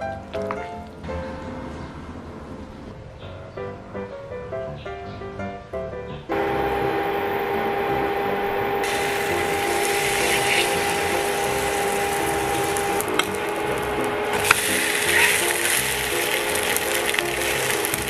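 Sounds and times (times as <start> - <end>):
steady tone: 6.3 - 18.0
batter sizzling in hot oil: 6.4 - 18.0.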